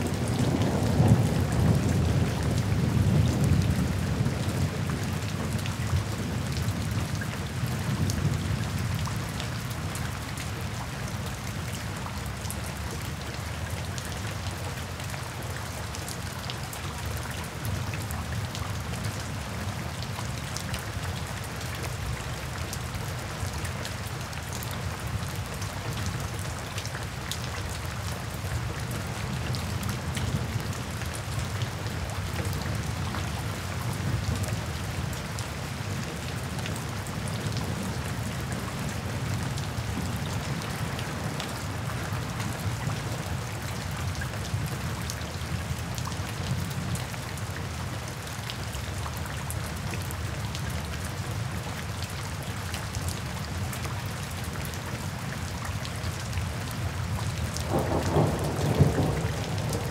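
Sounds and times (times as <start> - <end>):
steady rain falling: 0.0 - 59.9
thunder rumbling: 57.6 - 59.9.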